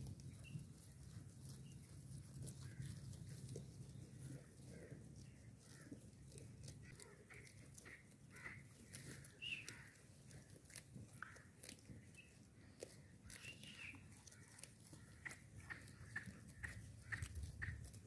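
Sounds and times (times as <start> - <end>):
goats chewing grass: 0.0 - 18.0
bird calls: 6.8 - 10.1, 13.0 - 17.8.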